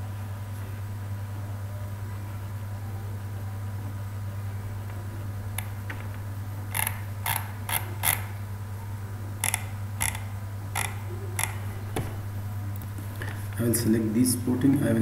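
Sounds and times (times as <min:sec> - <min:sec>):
steady low hum: 0:00.0 - 0:15.0
computer mouse clicking: 0:09.4 - 0:11.7.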